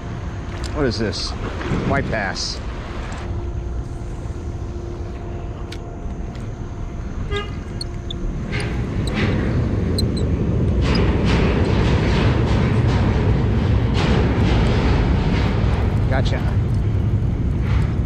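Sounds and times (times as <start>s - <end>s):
low horn-like tone: 3.2s - 9.4s
wind noise on microphone: 7.1s - 18.0s.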